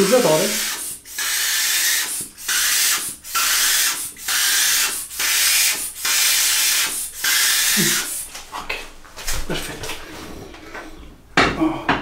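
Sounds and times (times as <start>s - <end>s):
pump sprayer hissing: 0.0s - 8.3s.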